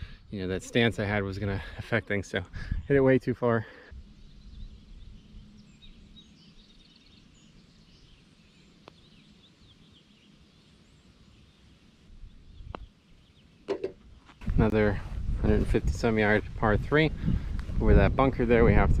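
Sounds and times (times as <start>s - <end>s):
small birds chirping: 0.0s - 14.5s.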